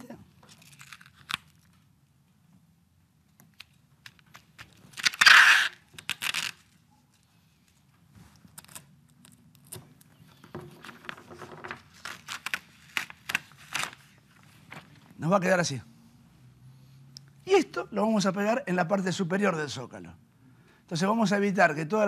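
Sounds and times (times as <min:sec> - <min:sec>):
masking tape ripping off roll: 0:00.5 - 0:01.7, 0:03.6 - 0:06.8, 0:11.9 - 0:14.2
paper rustling and crinkling: 0:05.9 - 0:15.2.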